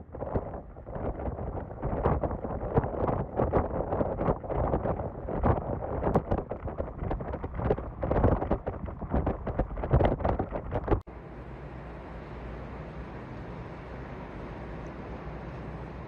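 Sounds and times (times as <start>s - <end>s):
steady rush of wind: 0.0s - 11.1s
wind buffeting microphone: 0.0s - 11.1s.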